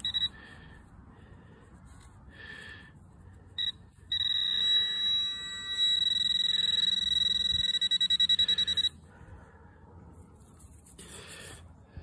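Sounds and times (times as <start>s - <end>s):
short beep: 0.0s - 0.4s, 3.6s - 9.0s
steady high-pitched tone: 3.6s - 9.2s.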